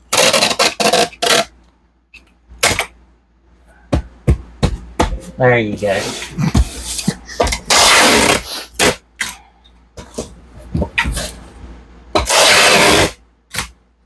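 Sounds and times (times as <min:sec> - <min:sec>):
packing tape ripping: 0:00.1 - 0:01.5, 0:07.6 - 0:09.0, 0:12.2 - 0:13.7.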